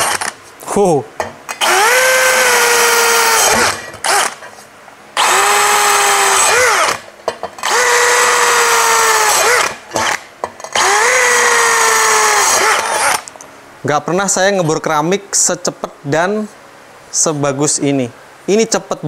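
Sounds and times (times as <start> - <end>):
drill whining through tile: 0.0 - 0.3, 1.6 - 4.4, 5.2 - 7.0, 7.6 - 13.3.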